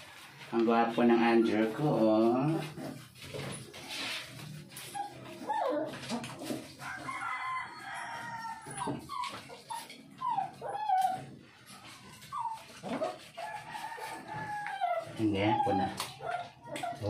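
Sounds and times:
high-pitched animal whines and yelps: 0:08.6 - 0:11.4, 0:14.4 - 0:17.0.

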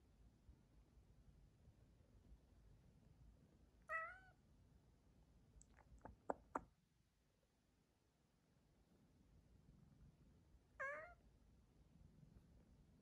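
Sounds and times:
cat meowing: 0:03.9 - 0:04.4, 0:10.8 - 0:11.2.

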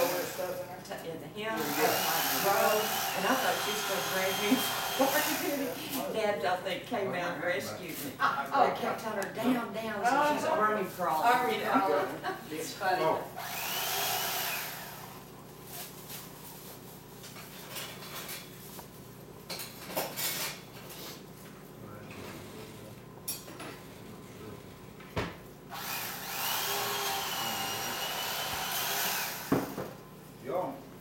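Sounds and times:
electric carving knife buzzing: 0:00.0 - 0:00.6, 0:01.6 - 0:05.8, 0:13.4 - 0:15.2, 0:25.7 - 0:29.9
kitchen clatter: 0:19.4 - 0:21.0.

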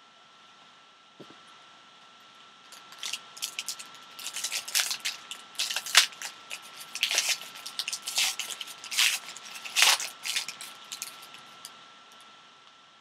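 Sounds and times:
plastic wrapper crinkling and tearing: 0:02.7 - 0:11.7.

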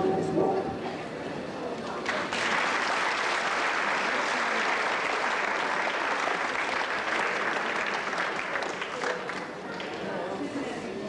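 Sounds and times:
audience applauding: 0:02.0 - 0:10.0.

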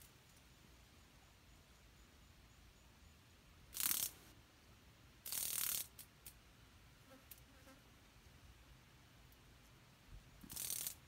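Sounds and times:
cicada harsh distress buzzes: 0:03.7 - 0:04.2, 0:10.5 - 0:11.0.

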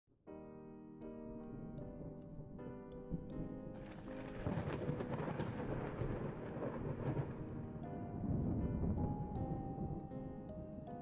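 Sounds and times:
soft background music: 0:00.2 - 0:11.0
rolling thunder: 0:03.8 - 0:10.1.

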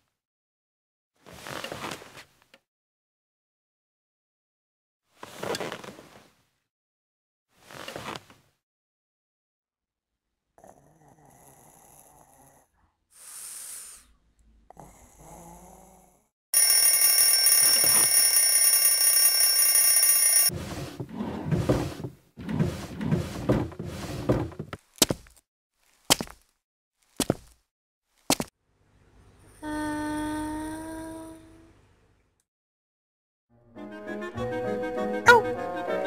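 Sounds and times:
alarm clock ringing: 0:16.6 - 0:20.5.

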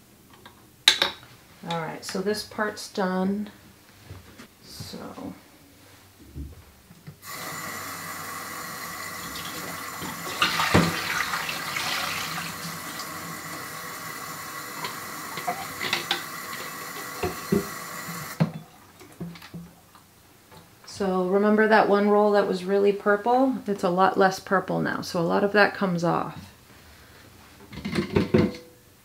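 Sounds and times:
faucet water splashing into sink: 0:09.0 - 0:19.5.

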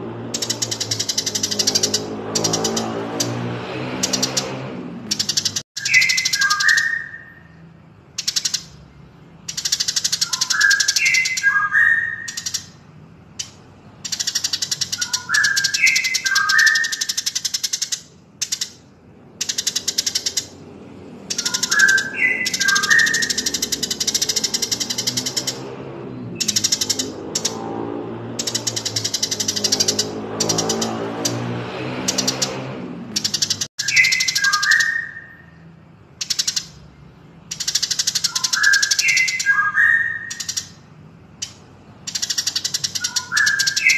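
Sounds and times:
fast high-pitched ticking bird trills: 0:00.3 - 0:20.6, 0:21.2 - 0:25.7, 0:26.3 - 0:43.9.

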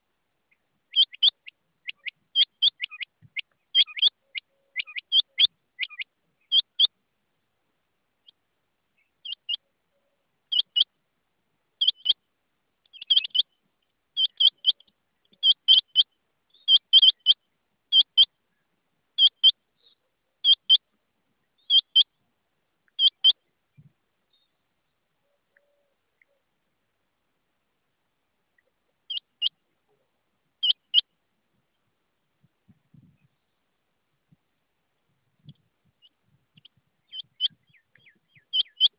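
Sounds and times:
quail calling: 0:00.5 - 0:07.0, 0:09.2 - 0:10.9, 0:11.8 - 0:12.2, 0:12.9 - 0:13.6, 0:14.2 - 0:18.3, 0:19.2 - 0:20.9, 0:21.6 - 0:22.2, 0:22.9 - 0:23.9, 0:25.2 - 0:26.5, 0:28.6 - 0:31.1, 0:36.0 - 0:38.9.

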